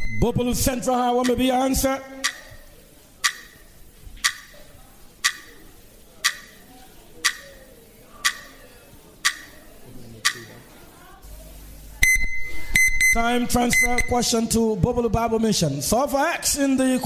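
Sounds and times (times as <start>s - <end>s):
timer ticking: 0.0s - 10.7s, 12.0s - 14.3s.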